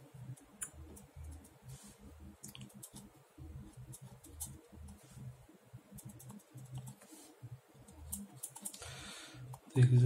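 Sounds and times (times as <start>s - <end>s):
small ticks and clicks: 2.4s - 3.1s.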